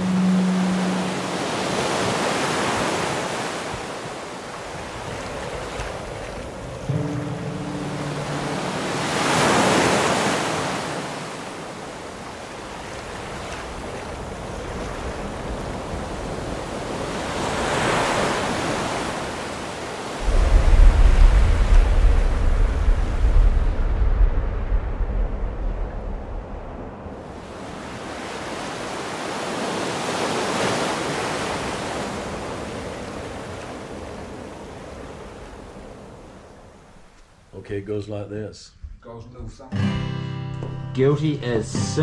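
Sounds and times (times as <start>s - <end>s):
short low tone: 0.0s - 1.8s, 6.9s - 9.0s
surf breaking on sandy beach: 0.0s - 36.5s
low rumble: 20.2s - 27.4s.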